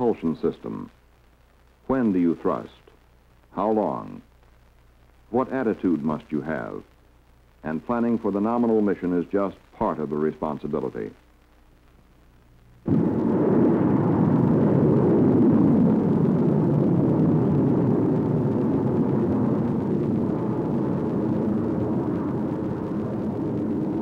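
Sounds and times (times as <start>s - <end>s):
rocket engines roaring: 12.9s - 24.0s.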